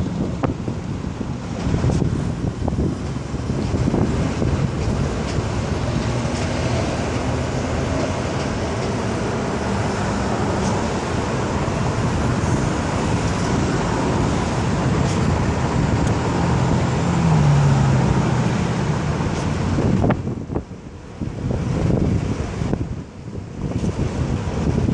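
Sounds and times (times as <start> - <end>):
heavy vehicle engine passing: 0.0 - 24.9
highway traffic noise: 0.0 - 24.9
wind on microphone: 0.0 - 24.9.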